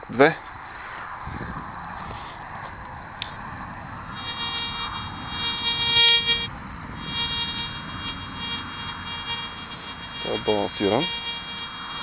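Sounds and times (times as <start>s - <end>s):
metal detector buzzing tone: 4.2s - 12.0s.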